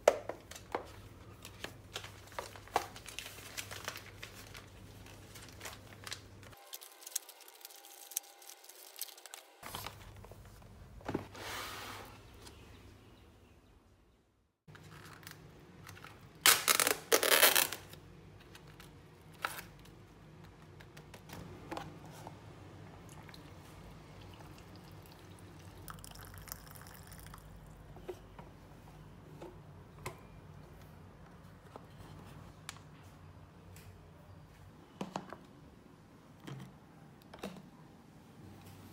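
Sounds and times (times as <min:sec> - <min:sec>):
water pouring into cup: 0:24.2 - 0:27.5.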